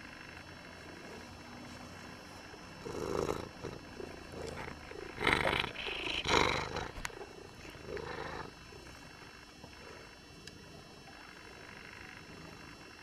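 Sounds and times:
cat purring: 0.1s - 10.2s.

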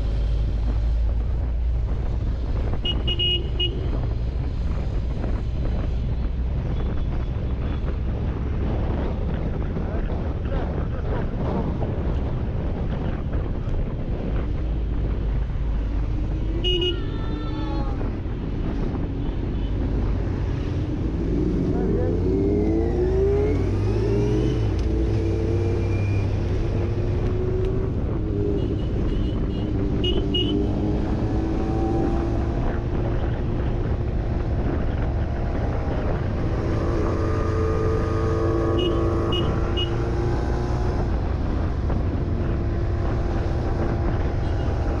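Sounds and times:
wind noise: 0.0s - 45.0s
motorcycle engine accelerating: 20.2s - 45.0s.

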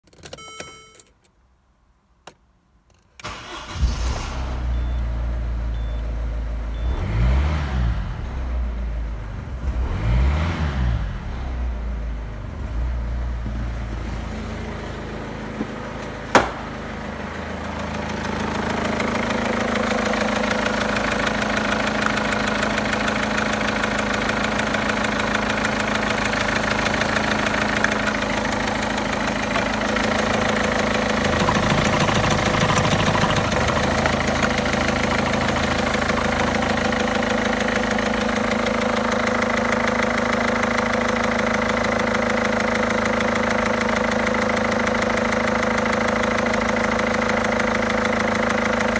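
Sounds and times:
diesel engine starting and idling: 3.2s - 48.9s
engine revving: 6.7s - 11.8s, 16.4s - 39.1s.

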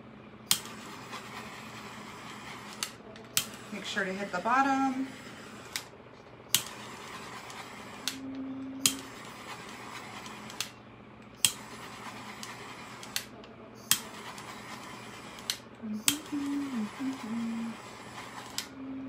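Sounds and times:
torch igniter clicking: 0.5s - 0.8s, 2.6s - 3.7s, 6.5s - 8.2s, 8.8s - 9.4s, 10.2s - 11.7s, 12.4s - 13.3s, 13.9s - 14.5s, 15.4s - 16.3s
torch flame hissing: 0.5s - 5.9s, 6.5s - 8.2s, 13.9s - 18.7s.

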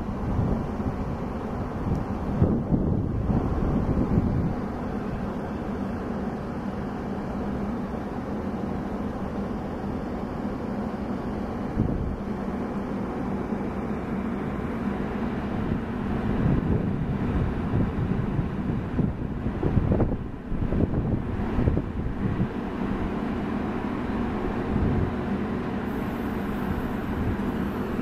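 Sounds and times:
wind gusts on microphone: 0.0s - 5.4s, 11.7s - 12.3s, 15.5s - 23.2s
train cars rumbling on rails: 0.0s - 28.0s.

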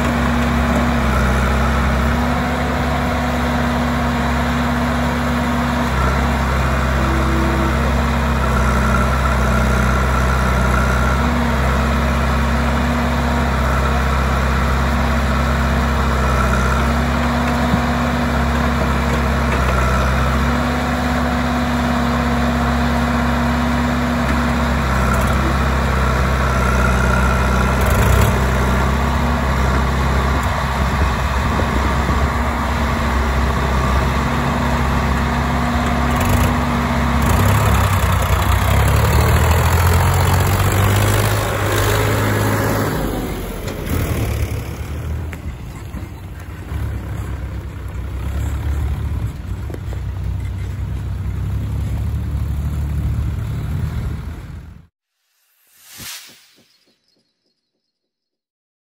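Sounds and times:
diesel engines running under load: 0.0s - 54.9s.

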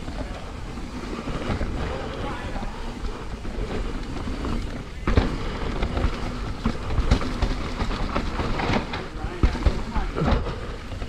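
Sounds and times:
bike rattling: 0.0s - 11.0s
bike tyres rumbling over dirt: 0.0s - 11.0s.

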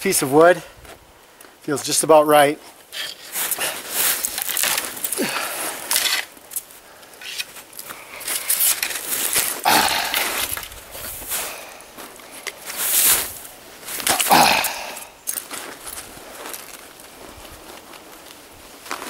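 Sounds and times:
footsteps crunching in snow: 2.6s - 19.0s.

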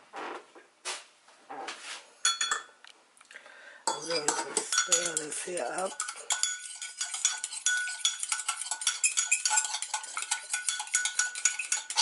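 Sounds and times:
fork clinking in mug: 2.2s - 2.7s, 3.9s - 12.0s
mug ringing: 2.2s - 2.7s, 3.9s - 9.8s, 10.4s - 12.0s.

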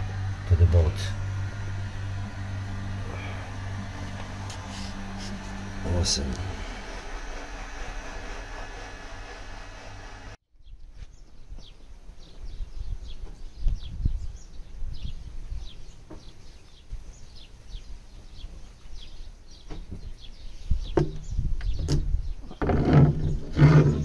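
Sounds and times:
low uneven rumble: 0.0s - 10.4s
small birds chirping: 10.6s - 24.0s.

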